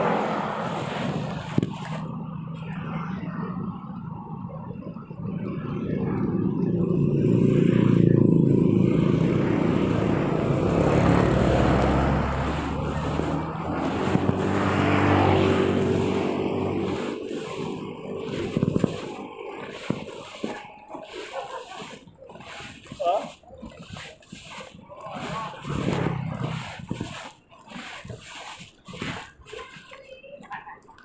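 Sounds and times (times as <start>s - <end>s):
small motorcycles passing by: 0.0s - 27.4s.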